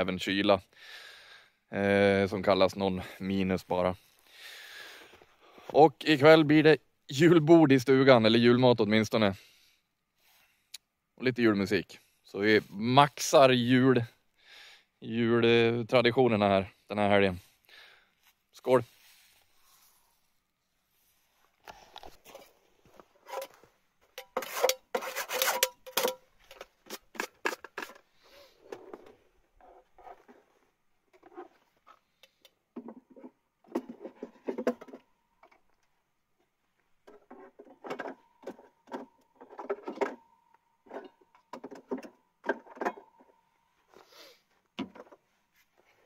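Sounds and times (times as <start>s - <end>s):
faint steady tone: 16.6s - 24.8s, 30.3s - 45.9s
objects rubbing and knocking: 21.7s - 32.1s.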